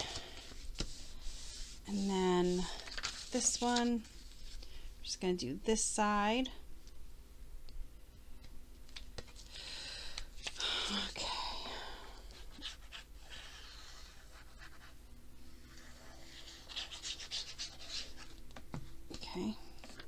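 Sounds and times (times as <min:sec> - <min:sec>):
paper rustling: 0:02.7 - 0:04.6.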